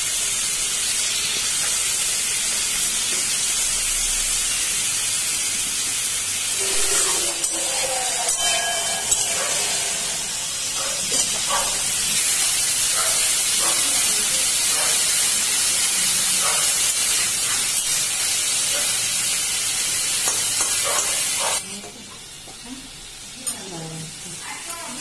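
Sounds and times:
food sizzling in a wok: 0:00.0 - 0:25.0
spatula scraping wok: 0:06.4 - 0:19.1.

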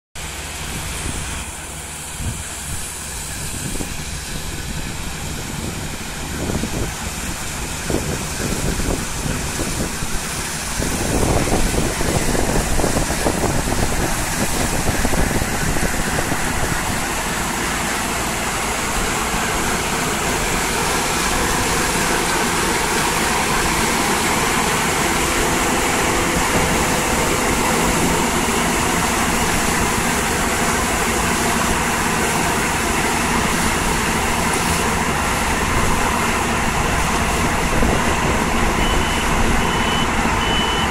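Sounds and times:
combine harvester droning: 0:00.2 - 0:40.9.

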